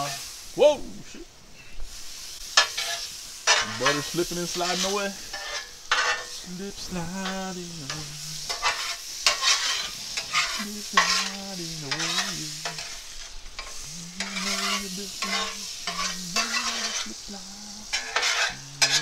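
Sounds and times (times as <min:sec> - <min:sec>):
butter sizzling on griddle: 0:00.0 - 0:19.0
metal spatula scraping and tapping: 0:02.6 - 0:04.0, 0:04.6 - 0:06.4, 0:07.2 - 0:13.0, 0:13.6 - 0:17.2, 0:17.9 - 0:19.0
man humming: 0:06.5 - 0:08.5, 0:10.6 - 0:12.8, 0:13.8 - 0:19.0.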